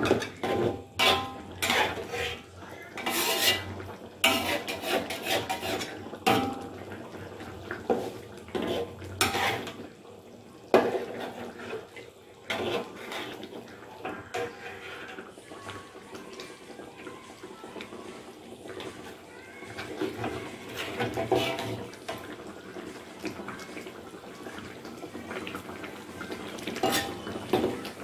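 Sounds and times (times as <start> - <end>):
spatula scraping a wok: 0.1 - 6.6, 7.9 - 9.8, 10.8 - 13.5, 14.3 - 15.2, 20.2 - 22.2, 26.7 - 27.7.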